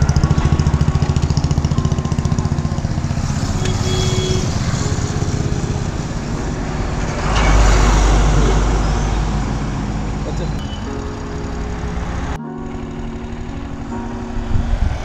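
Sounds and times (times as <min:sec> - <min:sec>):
engine pulsing beat: 0:00.0 - 0:11.1.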